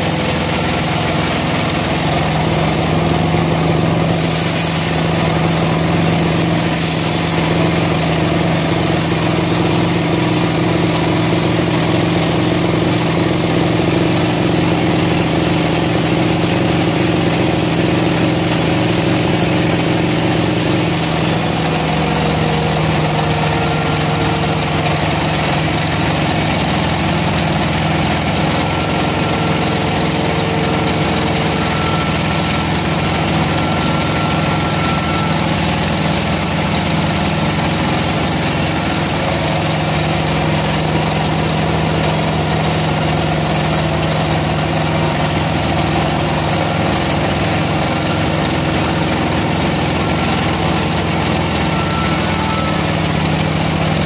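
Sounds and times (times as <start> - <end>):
band saw cutting log: 0.0 - 54.0
low motor hum: 13.4 - 54.0.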